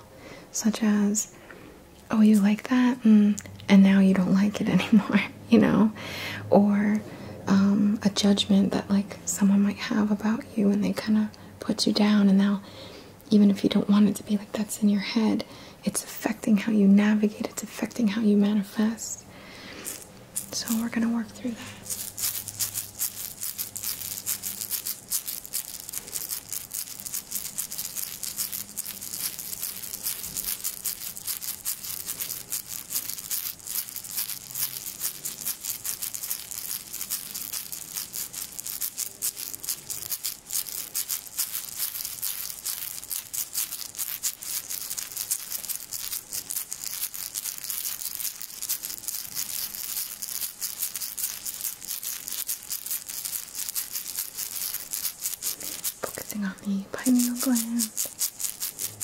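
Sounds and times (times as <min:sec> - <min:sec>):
hand rattle shaken fast: 0:19.8 - 0:21.0, 0:21.8 - 0:56.4, 0:57.0 - 0:59.0.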